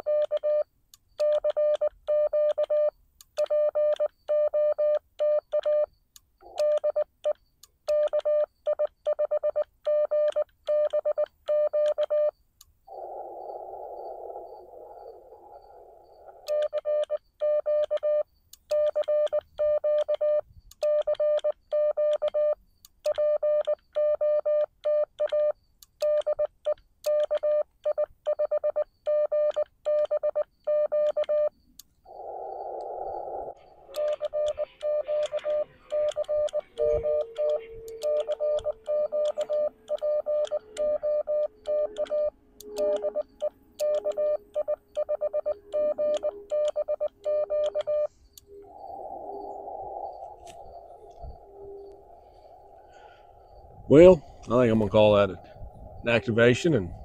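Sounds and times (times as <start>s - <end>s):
morse code tone: 34.0s - 48.2s
receiver hiss: 46.6s - 57.0s.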